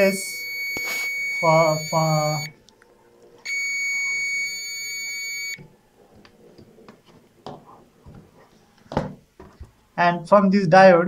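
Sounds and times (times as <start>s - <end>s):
multimeter continuity beep: 0.0s - 2.6s, 3.5s - 5.6s.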